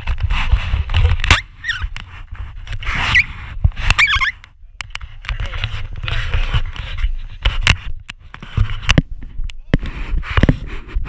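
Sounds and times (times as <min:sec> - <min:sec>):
wind on microphone: 0:00.0 - 0:11.0
high squeals: 0:03.9 - 0:04.4.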